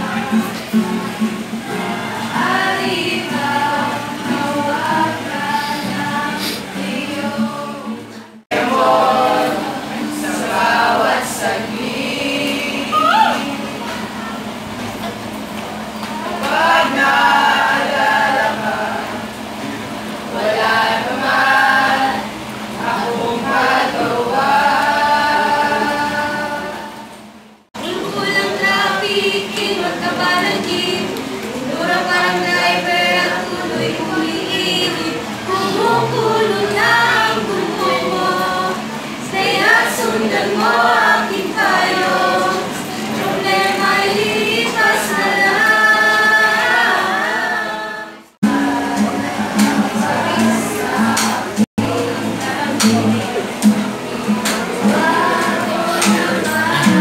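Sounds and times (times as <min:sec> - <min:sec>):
group of teenagers singing unaccompanied: 0:00.0 - 0:14.8, 0:15.4 - 0:57.0
acoustic guitar: 0:00.0 - 0:57.0.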